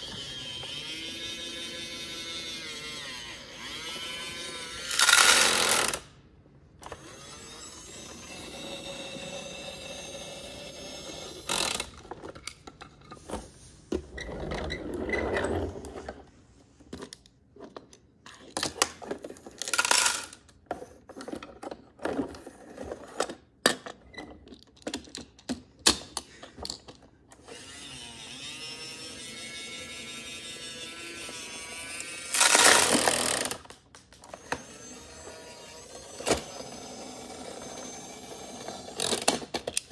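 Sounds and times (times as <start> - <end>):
toy truck electronic sound effects: 27.4 - 33.6, 34.3 - 39.3.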